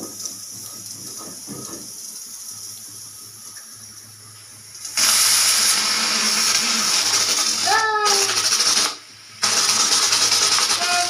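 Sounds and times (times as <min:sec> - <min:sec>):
liquid spitting from valve: 0:04.8 - 0:11.0
pressure cooker hissing: 0:04.8 - 0:11.0
steam bursting from valve: 0:04.8 - 0:11.0.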